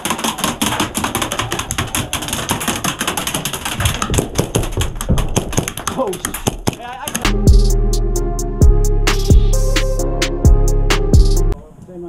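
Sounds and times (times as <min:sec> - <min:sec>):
heavier knocks: 0:00.0 - 0:06.8
airsoft guns firing: 0:00.0 - 0:07.3.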